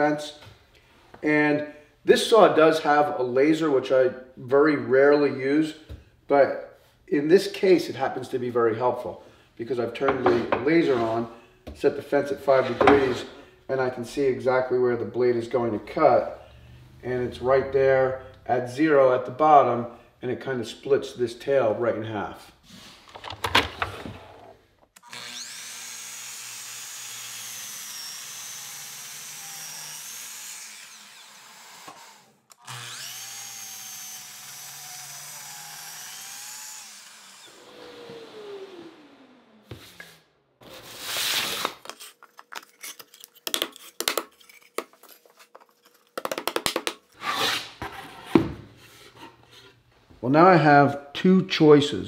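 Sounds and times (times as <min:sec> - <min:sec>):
miter saw whining: 0:25.0 - 0:40.3.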